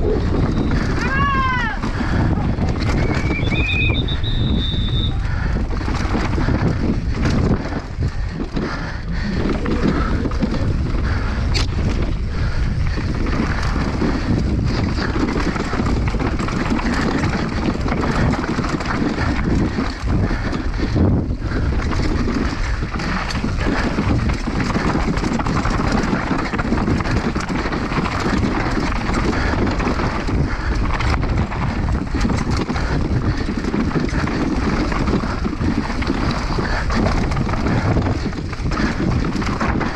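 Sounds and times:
bike rattling and knocking: 0:00.0 - 0:39.9
wind rushing over microphone: 0:00.0 - 0:39.9.

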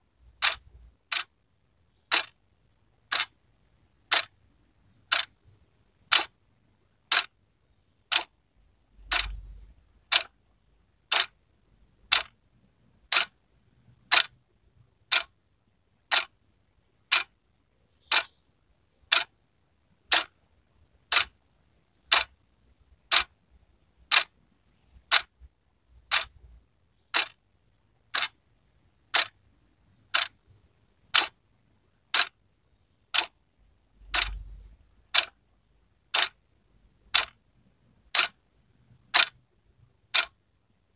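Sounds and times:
wall clock ticking: 0:00.0 - 0:02.4, 0:03.0 - 0:06.4, 0:07.0 - 0:07.4, 0:08.1 - 0:08.4, 0:09.0 - 0:10.4, 0:11.0 - 0:11.4, 0:12.0 - 0:12.4, 0:13.0 - 0:13.4, 0:14.0 - 0:14.4, 0:15.0 - 0:15.4, 0:16.0 - 0:16.4, 0:17.0 - 0:18.4, 0:19.0 - 0:19.4, 0:20.1 - 0:20.4, 0:21.0 - 0:23.4, 0:24.0 - 0:27.4, 0:28.0 - 0:28.4, 0:29.0 - 0:29.4, 0:30.0 - 0:31.4, 0:32.1 - 0:32.4, 0:33.1 - 0:33.4, 0:34.0 - 0:35.4, 0:36.0 - 0:36.4, 0:37.0 - 0:37.4, 0:38.0 - 0:39.5, 0:40.1 - 0:40.4
faint low rumble: 0:08.4 - 0:13.7, 0:32.7 - 0:39.9.

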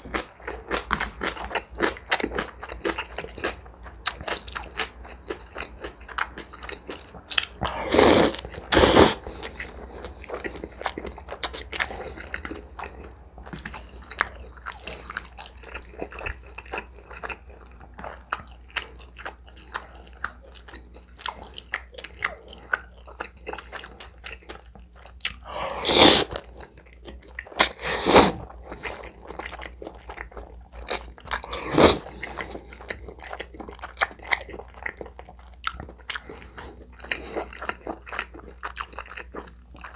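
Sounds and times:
wet chewing: 0:00.1 - 0:39.9
noodle slurps: 0:07.6 - 0:09.3, 0:25.4 - 0:26.5, 0:27.6 - 0:29.0, 0:31.4 - 0:32.4.

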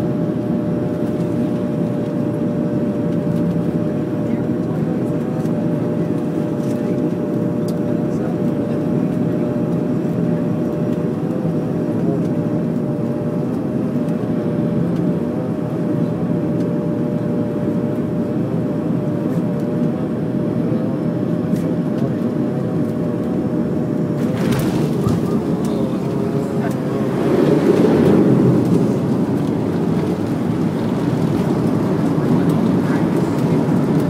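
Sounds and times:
turboprop engines droning: 0:00.0 - 0:34.0
wavering propeller tones: 0:20.1 - 0:34.0.

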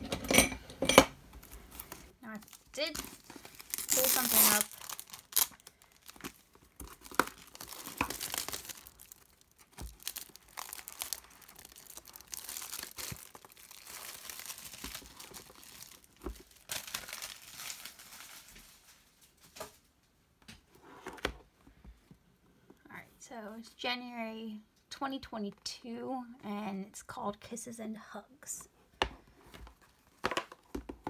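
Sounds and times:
plastic wrapping crinkling: 0:01.3 - 0:20.0.

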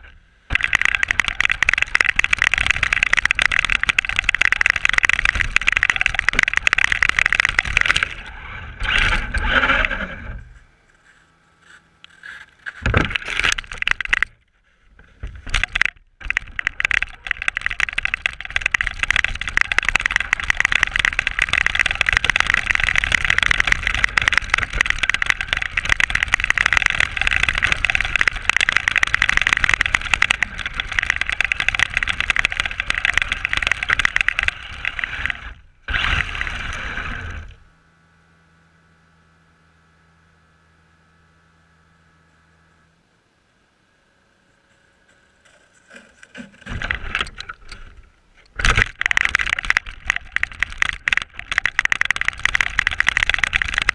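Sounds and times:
toy car motor: 0:00.5 - 0:10.4, 0:15.6 - 0:37.6, 0:48.7 - 0:53.9.

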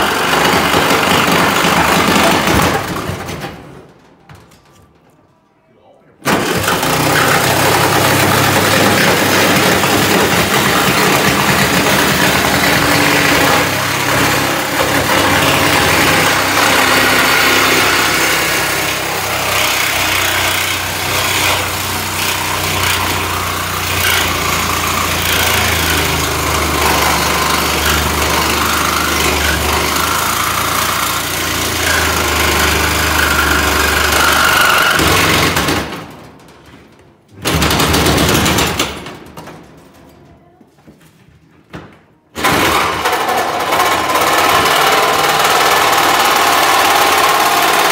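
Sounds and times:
power tool on metal: 0:06.4 - 0:35.6, 0:42.4 - 0:47.9.

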